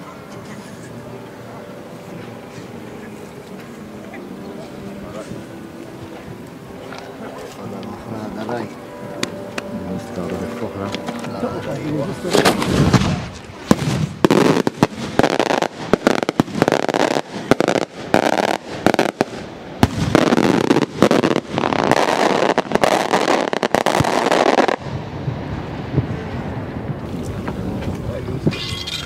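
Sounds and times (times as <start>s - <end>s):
firework shells bursting: 12.3s - 24.9s.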